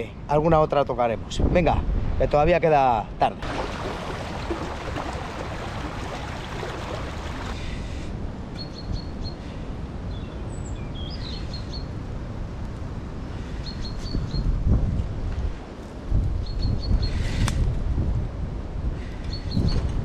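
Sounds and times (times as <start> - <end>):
river water running over riffle: 3.4 - 7.7.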